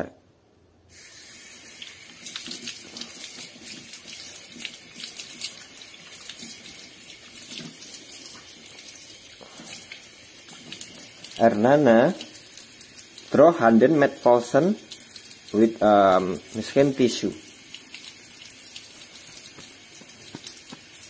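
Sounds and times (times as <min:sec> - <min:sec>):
tap water splashing on hands: 0:17.7 - 0:21.0.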